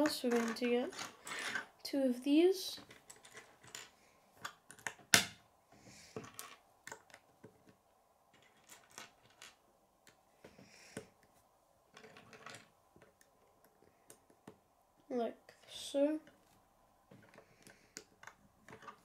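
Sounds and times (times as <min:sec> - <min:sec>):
plastic pieces clicking: 0:08.4 - 0:10.2.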